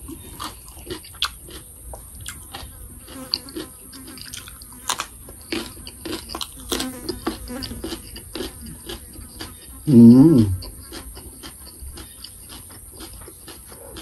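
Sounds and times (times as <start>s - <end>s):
person chewing crunchy cucumber: 0.0s - 14.0s
mouth clicks: 9.9s - 10.8s.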